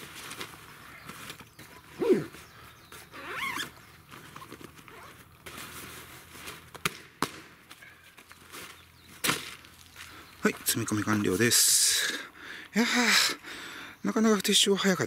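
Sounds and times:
bag rustling: 0.0s - 6.8s
high wavering animal call: 1.6s - 2.4s
zipper zipping: 1.9s - 2.3s, 3.1s - 5.8s.

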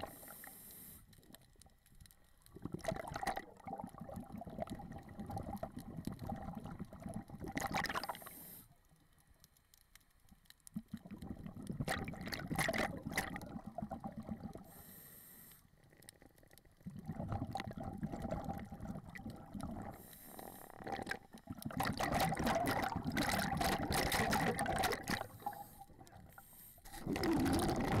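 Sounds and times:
bubbling exhaled air: 2.5s - 8.2s, 10.9s - 14.8s, 16.8s - 28.0s.

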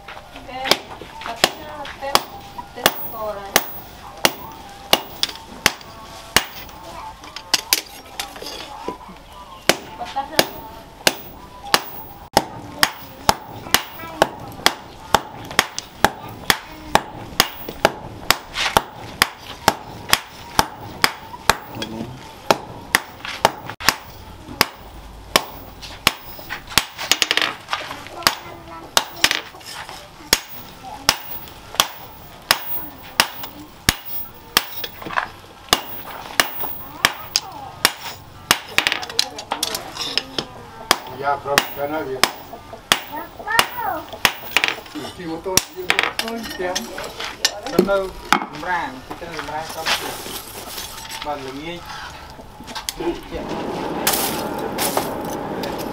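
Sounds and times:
hammer striking hot metal: 0.7s - 6.8s, 9.7s - 27.6s, 29.0s - 29.5s, 30.3s - 40.2s, 40.9s - 44.9s.

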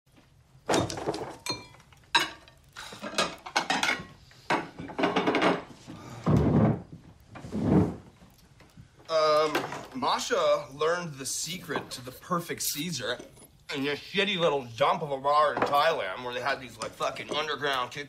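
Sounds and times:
dishes and cutlery clinking: 0.7s - 5.7s, 16.9s - 18.0s.

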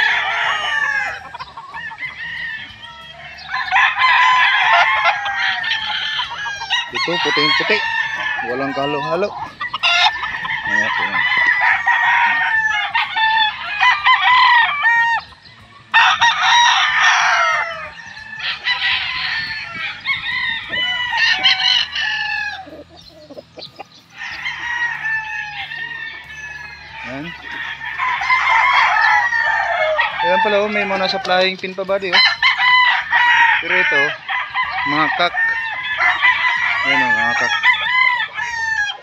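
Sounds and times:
roosters crowing: 0.0s - 39.0s.

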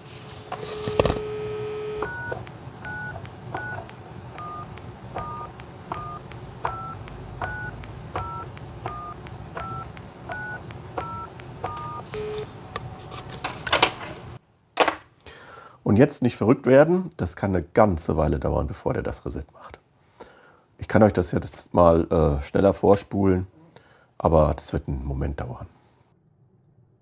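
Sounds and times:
dial tone: 0.6s - 3.8s, 4.4s - 12.5s
touch-tone beeps: 0.8s - 12.4s
short low beep: 4.4s - 12.4s.

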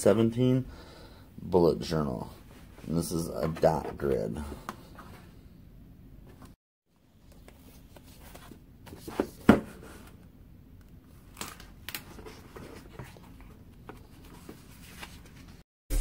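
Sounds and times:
pages flipping: 11.2s - 15.6s
paper rustling: 11.2s - 15.6s.

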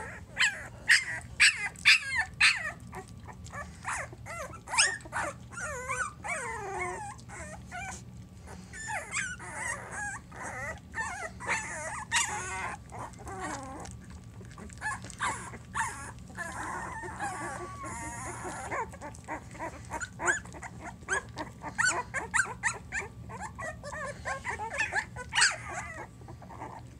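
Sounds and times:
puppies whimpering and squealing: 0.0s - 26.9s
puppies mouthing clicks: 10.7s - 26.1s.

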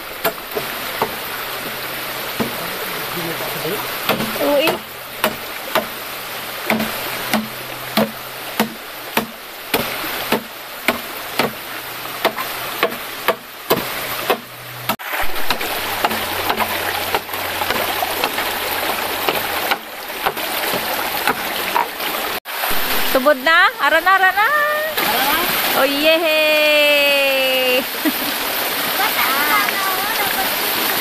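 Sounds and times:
stream water rushing: 0.0s - 31.0s
knife chopping bamboo: 4.1s - 6.0s, 6.7s - 11.6s, 12.2s - 14.5s.

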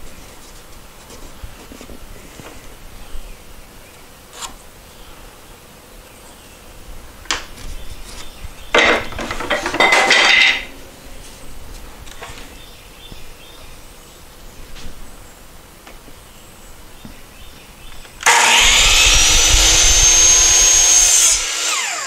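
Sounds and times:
scraping and clattering: 8.8s - 10.8s.

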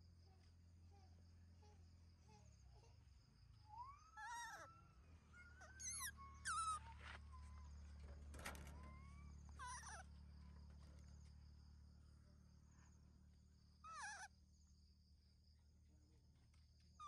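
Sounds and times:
baby monkey squeaky calls: 3.8s - 7.7s, 8.9s - 10.0s, 13.8s - 14.3s.

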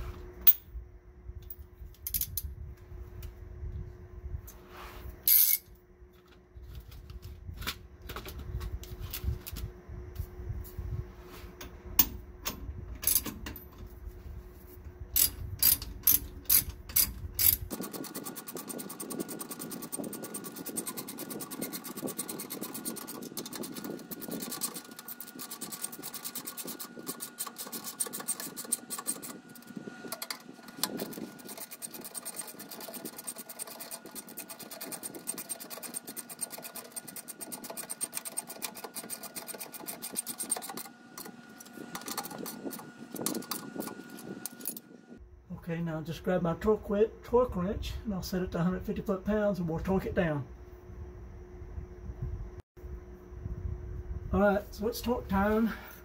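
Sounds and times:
socket ratchet clicking: 15.2s - 17.8s.

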